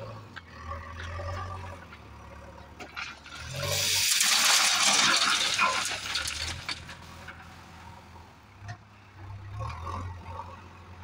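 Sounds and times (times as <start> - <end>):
stones pouring into metal wagon: 2.9 - 7.4.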